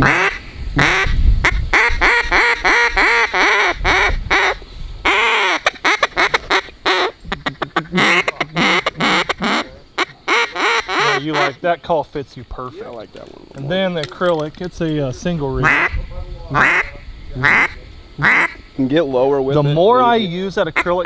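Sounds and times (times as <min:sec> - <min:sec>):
duck call quacks: 0:00.0 - 0:11.6, 0:15.6 - 0:18.6.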